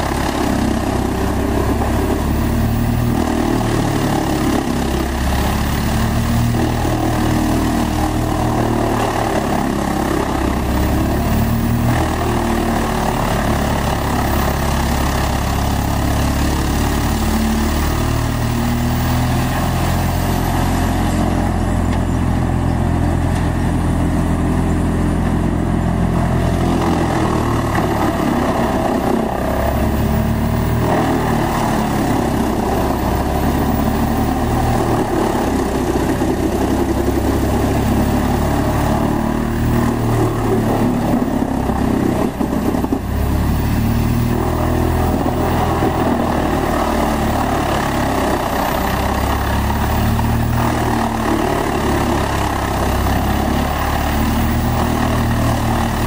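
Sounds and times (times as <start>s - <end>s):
wood chipper engine under load: 0.0s - 56.0s.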